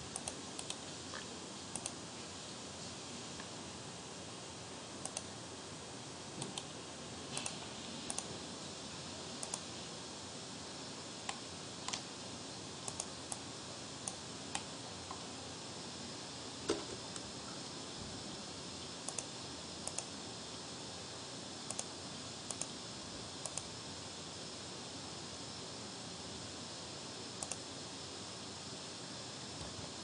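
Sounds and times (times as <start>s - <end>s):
steady background hiss: 0.0s - 30.0s
computer mouse clicks: 0.1s - 2.0s, 5.0s - 5.3s, 6.4s - 6.7s, 7.3s - 8.3s, 9.4s - 9.7s, 11.2s - 12.1s, 12.8s - 13.4s, 14.0s - 15.2s, 19.0s - 20.1s, 21.7s - 21.9s, 22.5s - 22.8s, 23.4s - 23.7s, 27.4s - 27.6s.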